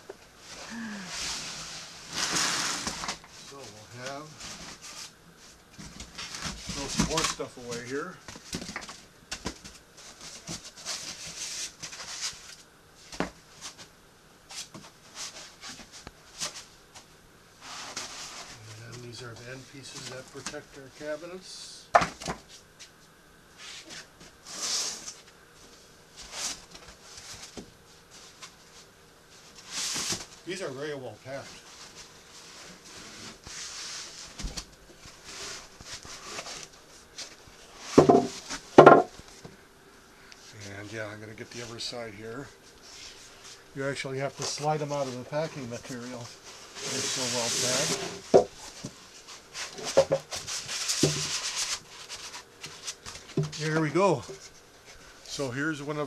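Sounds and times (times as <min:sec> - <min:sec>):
foam blocks scraping and rustling: 0:00.4 - 0:08.2, 0:17.6 - 0:21.3, 0:23.6 - 0:39.4, 0:40.5 - 0:54.6.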